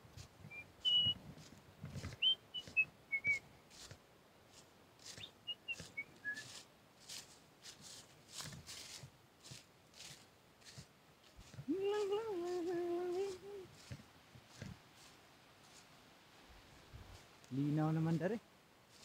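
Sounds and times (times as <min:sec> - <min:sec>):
footsteps crunching dry leaves: 0:03.7 - 0:17.4, 0:18.0 - 0:19.0.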